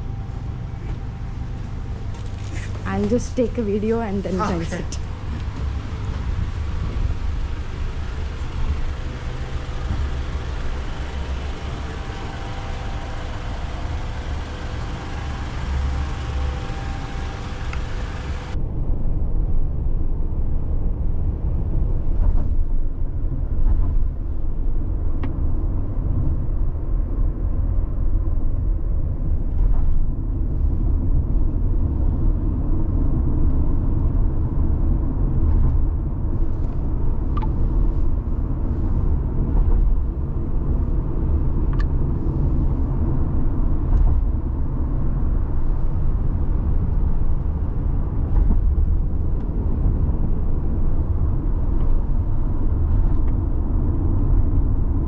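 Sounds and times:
road rumble inside car cabin: 0.0s - 18.6s, 20.9s - 55.0s
vehicles rumbling in parking garage: 0.0s - 18.6s, 21.2s - 55.0s.

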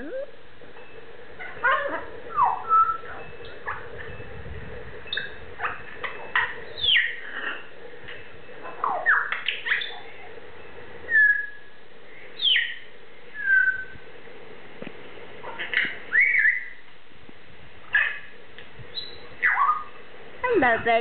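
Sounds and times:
macaw whistles and calls: 1.4s - 4.0s, 5.1s - 7.7s, 8.6s - 10.1s, 11.1s - 14.0s, 15.4s - 16.9s, 17.9s - 18.3s, 18.9s - 20.0s.

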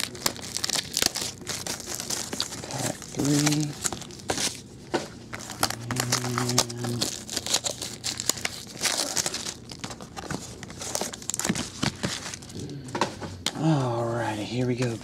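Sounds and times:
foil wrappers crinkling and tearing: 0.0s - 12.8s.

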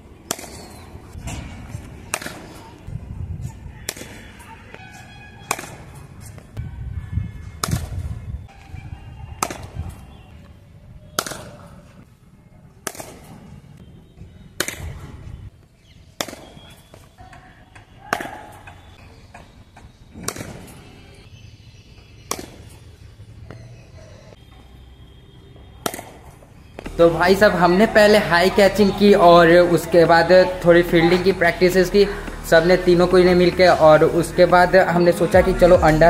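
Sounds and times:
cricket bat striking ball: 0.2s - 0.8s, 2.0s - 2.7s, 5.4s - 5.9s, 7.6s - 8.0s, 9.4s - 9.9s, 11.1s - 11.7s, 14.6s - 15.1s, 16.2s - 16.7s, 18.1s - 18.9s, 25.8s - 27.0s.

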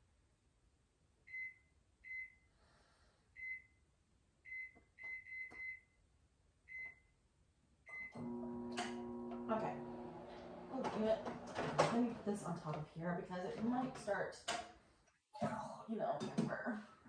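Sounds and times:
microwave keypad beeps: 7.9s - 8.2s
microwave humming: 7.9s - 12.8s.

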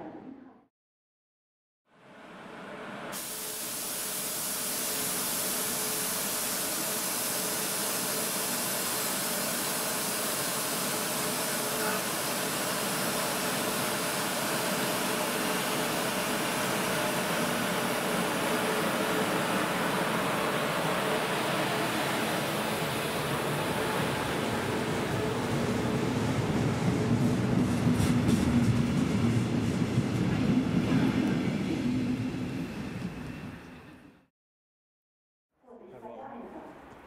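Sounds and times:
locomotive cooling blowers hissing: 3.1s - 27.2s.

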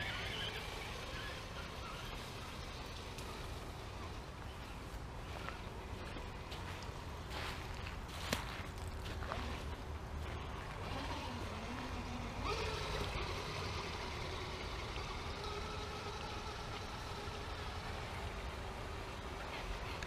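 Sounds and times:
toy car motor whining: 0.0s - 4.2s, 10.8s - 18.5s.

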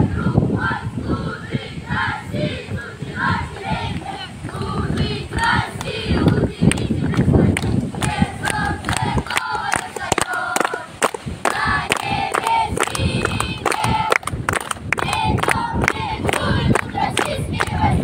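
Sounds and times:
crowd singing and shouting: 0.0s - 18.0s.

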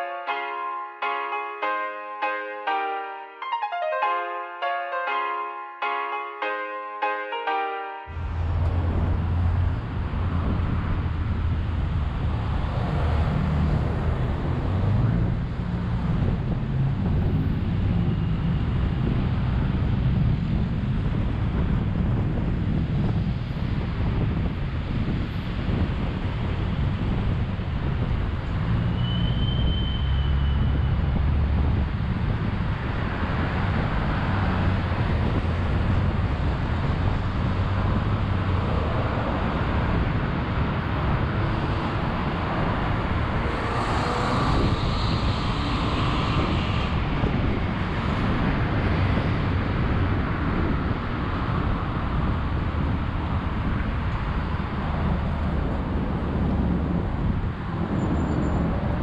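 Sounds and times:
short high tone: 0.0s - 8.3s
road traffic rumble: 8.1s - 59.0s.

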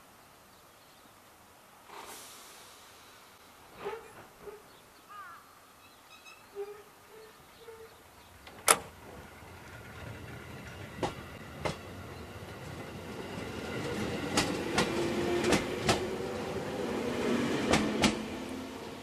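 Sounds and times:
wheels clacking over rail joints: 7.8s - 16.2s, 17.6s - 18.4s.

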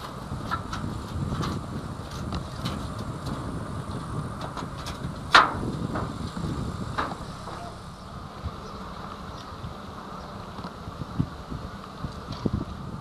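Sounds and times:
wheels clicking over rail joints: 0.0s - 8.2s
locomotive rumble: 0.0s - 13.0s.

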